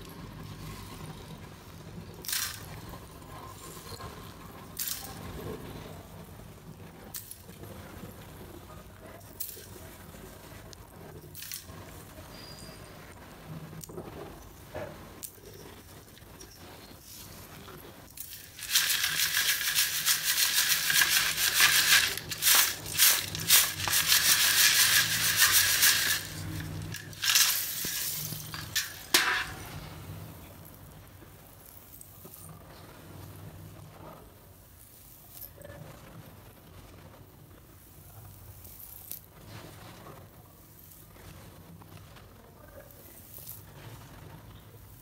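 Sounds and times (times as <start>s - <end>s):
handling sounds: 15.2s - 29.9s
flakes poured into steel sieve: 18.2s - 29.7s
short rattles: 18.2s - 29.7s.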